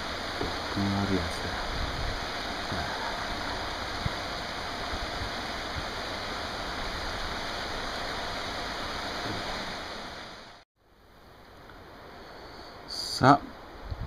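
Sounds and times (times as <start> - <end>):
stream rushing over rocks: 0.0 - 10.6.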